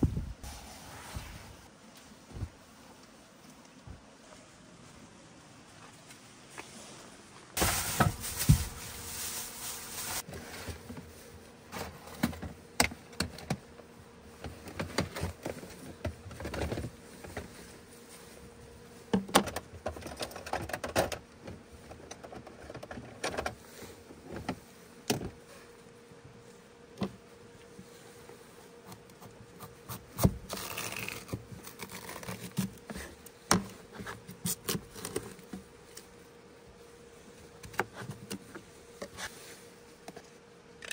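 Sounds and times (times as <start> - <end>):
faint steady hum: 0.0 - 40.9
plastic bins and gear clattering: 7.6 - 11.1, 14.4 - 17.7, 19.1 - 25.4.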